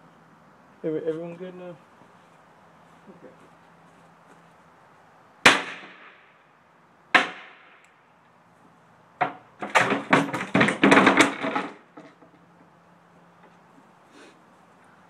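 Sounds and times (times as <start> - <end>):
loud sharp knocks: 5.4 - 6.2, 7.1 - 7.8, 9.2 - 12.1.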